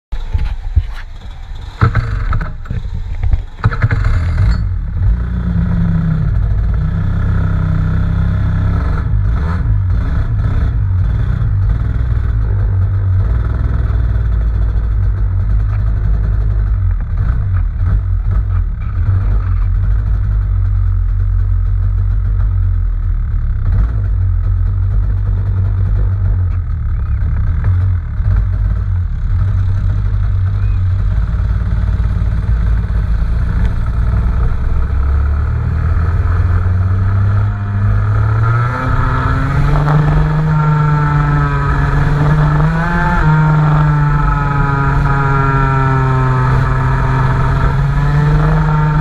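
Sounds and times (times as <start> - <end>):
kart engine starting and running: 0.1 - 49.0.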